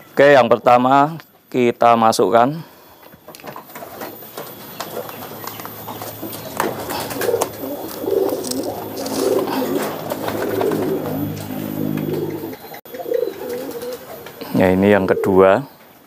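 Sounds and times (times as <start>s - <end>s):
pigeons cooing: 3.6s - 16.0s.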